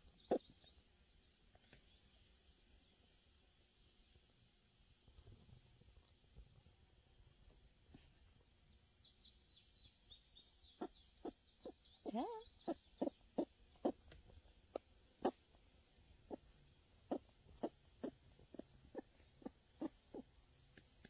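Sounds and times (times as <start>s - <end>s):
hens clucking: 14.7s - 15.4s, 17.1s - 20.3s.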